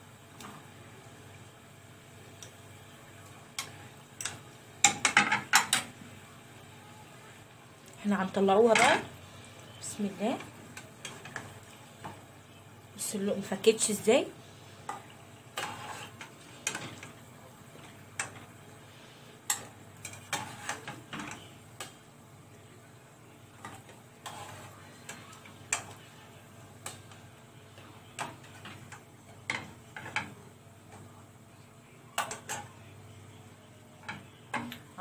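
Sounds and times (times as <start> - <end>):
hot oil sizzling: 0.0 - 35.0.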